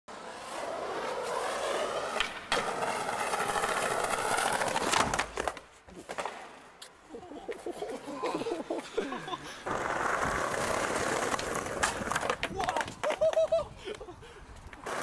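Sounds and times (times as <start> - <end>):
skateboard wheels rolling on paving: 0.1 - 15.0
skateboard clack: 1.2 - 6.6, 9.6 - 14.0.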